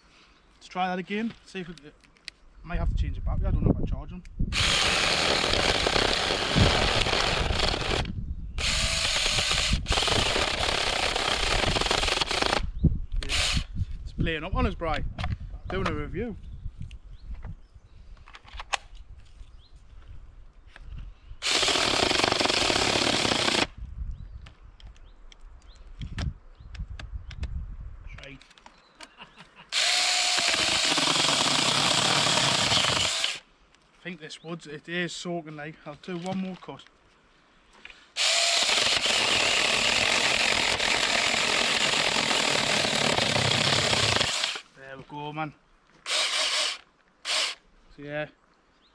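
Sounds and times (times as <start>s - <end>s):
chainsaw cutting a branch: 4.6s - 12.6s, 21.4s - 23.7s, 29.8s - 33.4s, 38.2s - 44.7s, 46.1s - 47.6s.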